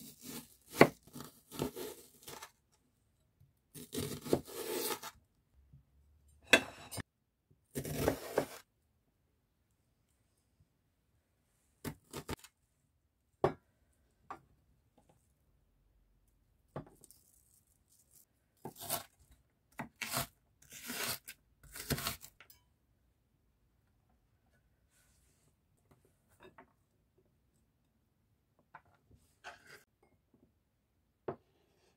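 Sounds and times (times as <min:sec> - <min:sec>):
knife cutting onion on wooden board: 0:00.0 - 0:02.5, 0:03.7 - 0:05.2, 0:07.7 - 0:08.7, 0:18.6 - 0:22.4
onion layers tearing: 0:19.9 - 0:22.4.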